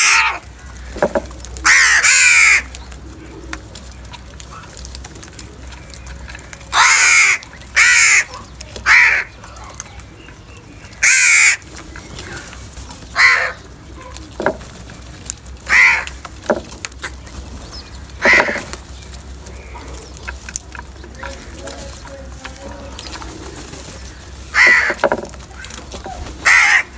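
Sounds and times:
crows cawing: 0.0s - 3.4s, 5.8s - 9.8s, 10.8s - 14.6s, 15.6s - 17.2s, 18.1s - 18.8s, 19.4s - 26.9s.

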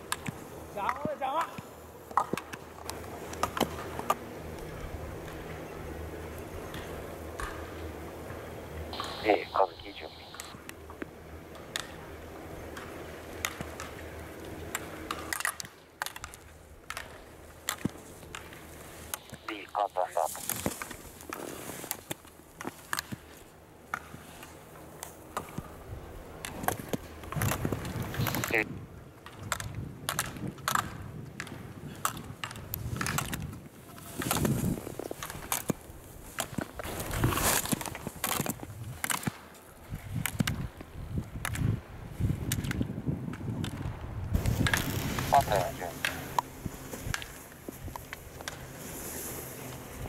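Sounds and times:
skis scraping on snow: 11.6s - 25.8s, 26.5s - 28.6s, 31.4s - 40.4s, 44.4s - 50.0s.

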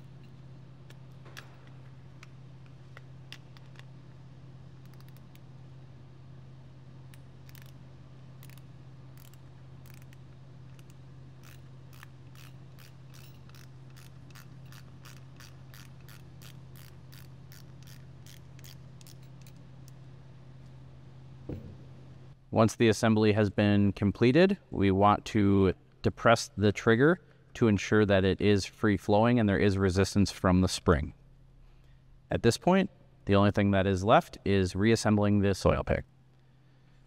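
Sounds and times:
low hum: 0.0s - 27.5s
ratcheting driver clicks: 4.8s - 5.4s, 7.4s - 7.8s, 8.4s - 19.6s.

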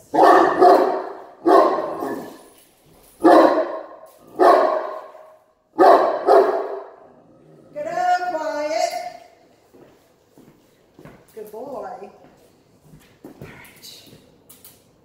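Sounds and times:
dog barking: 0.0s - 2.4s, 3.2s - 7.0s.

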